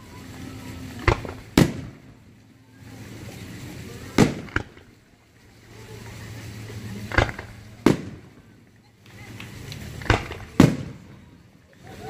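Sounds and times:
firework bangs: 0.5 - 11.5.

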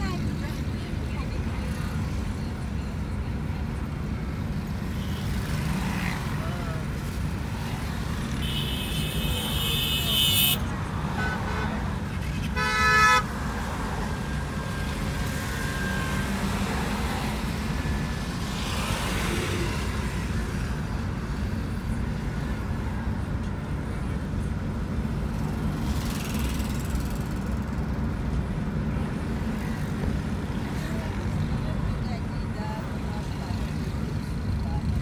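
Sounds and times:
car road and engine rumble: 0.0 - 35.0
vehicle horn: 8.4 - 11.8, 12.4 - 13.4.

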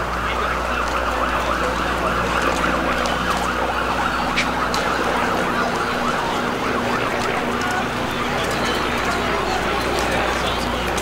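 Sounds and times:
emergency sirens wailing: 0.0 - 11.0
street noise rumble: 0.0 - 11.0.

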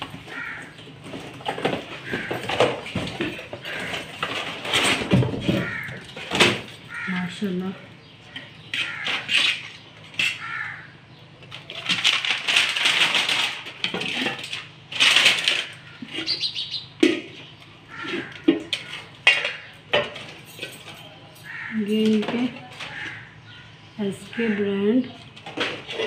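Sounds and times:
plastic wrapping crinkling: 11.5 - 15.8.

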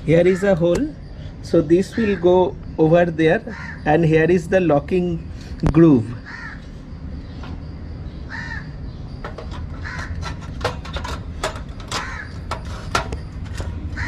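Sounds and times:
crows cawing: 1.9 - 2.6, 3.4 - 4.1, 6.2 - 6.9, 8.2 - 8.9, 9.7 - 10.4, 11.9 - 12.6.

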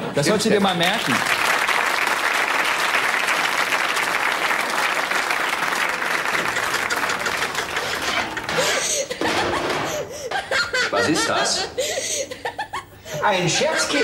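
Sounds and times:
audience applauding: 0.4 - 9.0.

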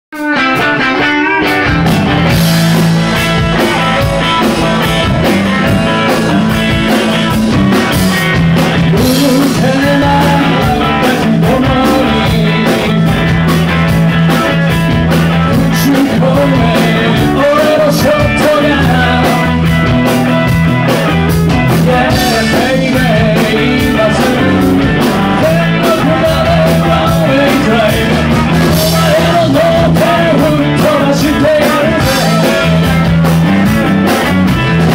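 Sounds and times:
live rock band playing: 0.1 - 34.9.

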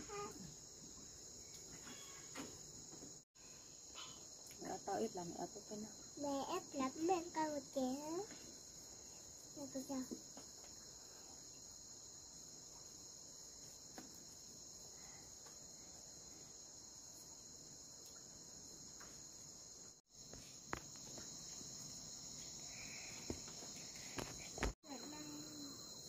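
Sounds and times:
insects chorus shrill drone: 0.0 - 2.6, 3.4 - 8.1.

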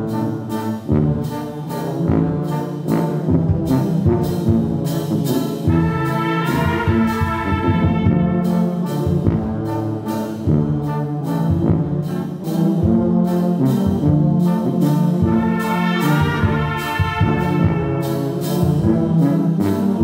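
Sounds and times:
brass band playing a hymn: 0.0 - 20.0.

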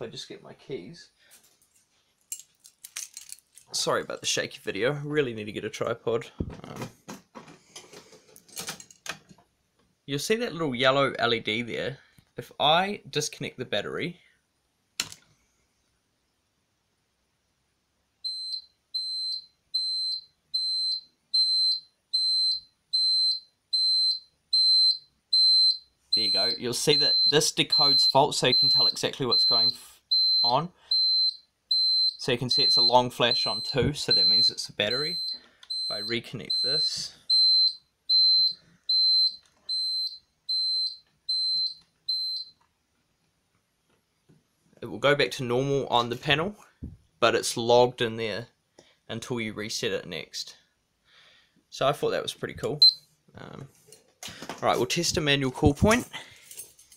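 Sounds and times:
fault buzzer beeping: 18.3 - 42.5.

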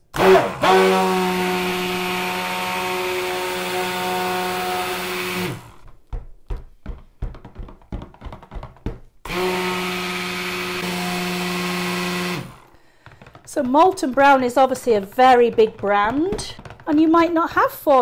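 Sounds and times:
stick blender running: 0.0 - 5.8, 9.2 - 17.4.

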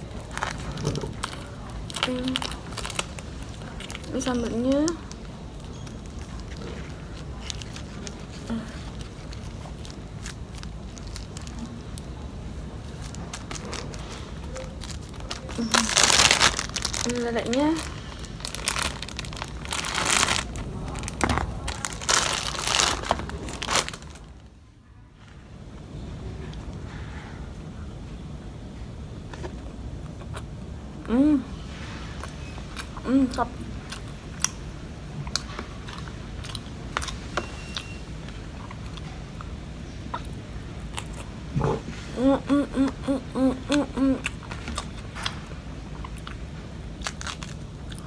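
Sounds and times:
chewing crispy food: 0.0 - 24.4, 31.7 - 42.1, 43.6 - 48.0
plastic bag crinkling: 0.0 - 24.5
short hummed voice sounds: 42.1 - 44.2.

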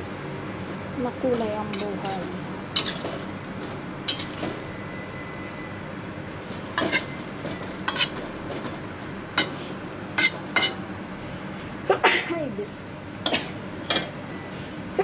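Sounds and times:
spatula scraping a wok: 2.7 - 4.7, 6.4 - 8.4, 9.4 - 10.8.

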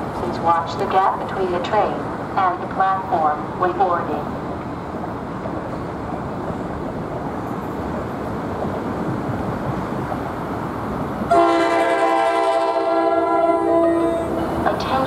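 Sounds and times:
train horn long blast: 11.3 - 14.4.

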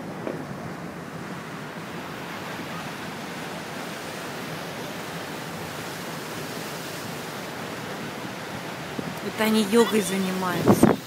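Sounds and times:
water rushing: 0.0 - 11.0
wind rushing: 10.2 - 11.0.

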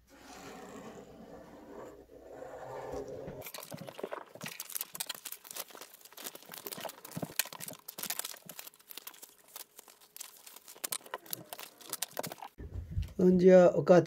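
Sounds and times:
paper rustling and crinkling: 3.4 - 12.6.

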